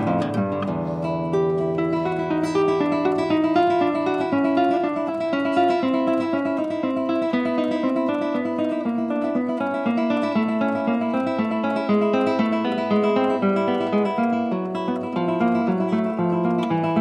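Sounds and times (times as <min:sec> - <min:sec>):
solo guitar playing: 0:00.0 - 0:17.0.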